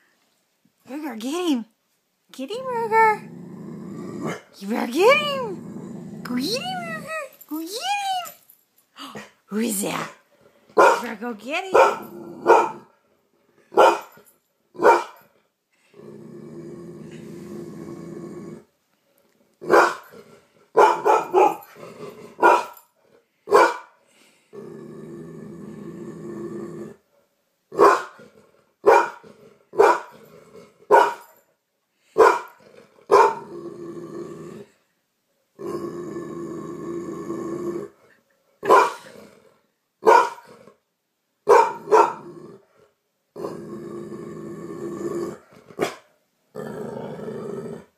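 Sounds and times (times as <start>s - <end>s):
dog growling: 3.1s - 7.4s, 11.8s - 13.0s, 15.8s - 18.8s, 19.6s - 23.2s, 24.5s - 27.1s, 28.1s - 30.9s, 32.6s - 34.8s, 35.6s - 38.2s, 38.8s - 39.7s, 41.7s - 47.9s
dog barking: 10.8s - 11.1s, 11.7s - 12.9s, 13.7s - 14.1s, 14.8s - 15.2s, 19.7s - 20.1s, 20.8s - 21.6s, 22.4s - 22.8s, 23.5s - 24.0s, 27.8s - 28.2s, 28.8s - 29.2s, 29.8s - 30.1s, 30.9s - 31.3s, 32.2s - 33.4s, 38.6s - 39.0s, 40.0s - 40.4s, 41.5s - 42.2s, 45.8s - 46.1s.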